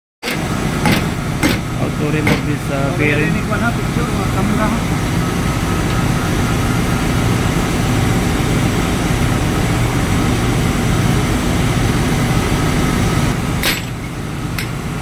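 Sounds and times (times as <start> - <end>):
ship engine room machinery drone: 0.2 - 15.0.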